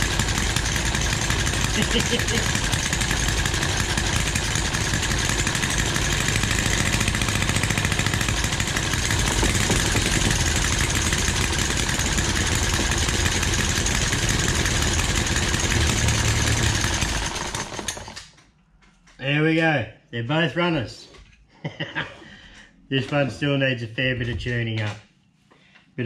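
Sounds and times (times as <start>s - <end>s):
model engines idling fast: 0.0s - 18.2s.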